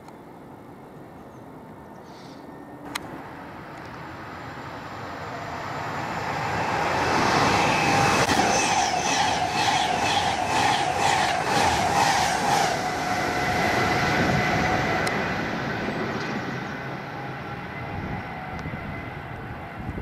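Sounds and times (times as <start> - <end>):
train whine: 0.2 - 20.0
train rumble: 2.6 - 20.0.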